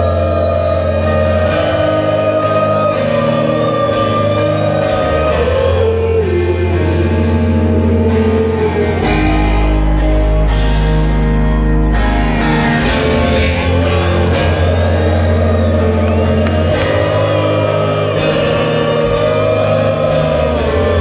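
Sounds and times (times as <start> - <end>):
person singing: 0.0 - 10.5, 12.3 - 21.0
live rock band playing: 0.0 - 21.0
audience shouting and whooping: 13.8 - 21.0.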